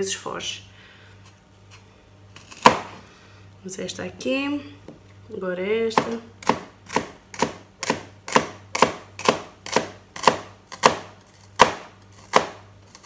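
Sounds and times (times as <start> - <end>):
knife slicing onion on board: 6.0 - 13.0.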